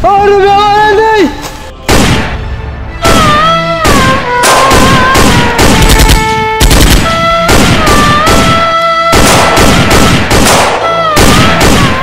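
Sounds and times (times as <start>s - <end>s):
background music with gliding notes: 0.3s - 12.0s
rifles firing automatically: 3.9s - 8.6s, 9.2s - 12.0s.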